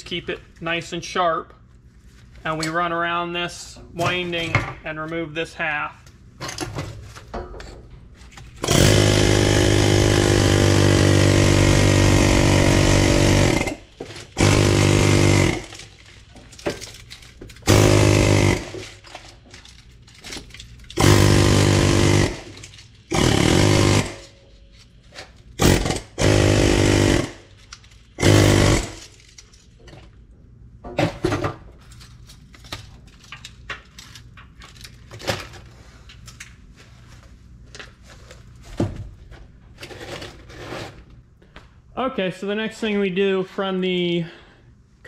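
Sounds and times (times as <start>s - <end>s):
pneumatic air chisel hammering: 8.6s - 15.9s, 17.6s - 18.9s, 21.0s - 24.3s, 25.6s - 27.5s, 28.2s - 29.1s.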